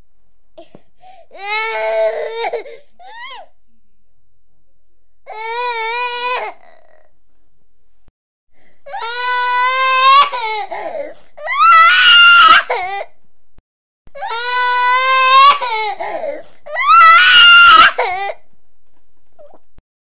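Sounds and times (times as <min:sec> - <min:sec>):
baby crying: 0:08.9 - 0:13.0, 0:14.2 - 0:18.4.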